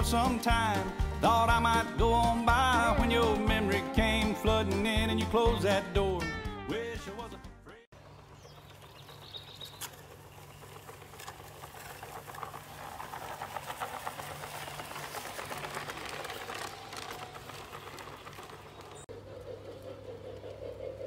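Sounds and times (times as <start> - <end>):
wheels clicking on track: 0.0 - 5.8, 8.0 - 21.0
model train motors whirring: 9.1 - 21.0.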